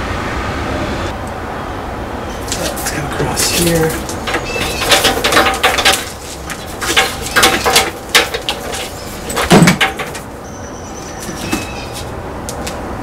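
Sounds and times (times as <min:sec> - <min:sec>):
cable rustling and scraping: 0:02.4 - 0:10.4, 0:11.0 - 0:12.8.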